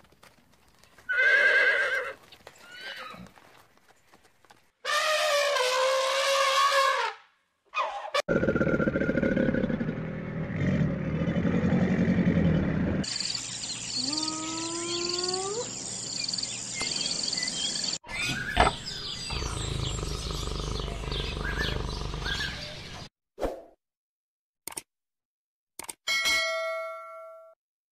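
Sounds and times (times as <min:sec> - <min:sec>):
deep pulsing growl: 0:08.3 - 0:13.0, 0:19.2 - 0:23.1
lion low rumbling growl: 0:08.3 - 0:13.0, 0:19.1 - 0:23.1
birds chirping: 0:11.1 - 0:23.1.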